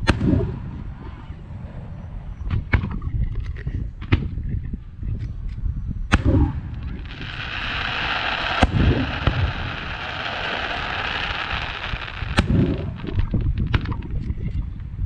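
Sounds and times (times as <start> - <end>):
low rumbling echo: 0.0 - 4.4, 6.0 - 15.0
firework shells bursting: 6.2 - 14.1
steady hiss: 6.6 - 13.2.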